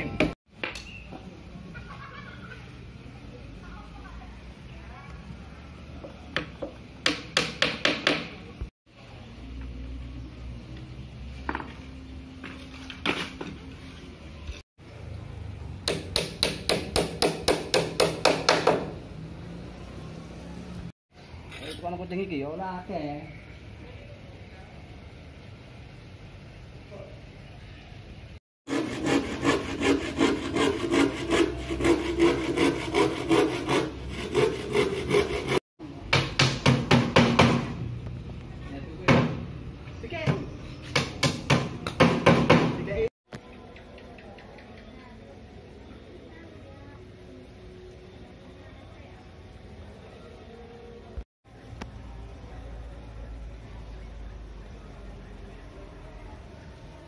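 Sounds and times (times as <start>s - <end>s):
hand saw cutting plywood: 28.7s - 35.6s.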